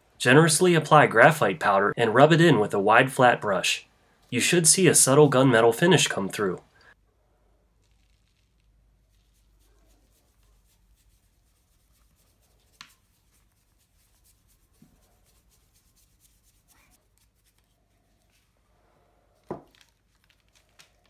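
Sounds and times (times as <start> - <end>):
brush scratching on plastic: 7.8 - 19.0.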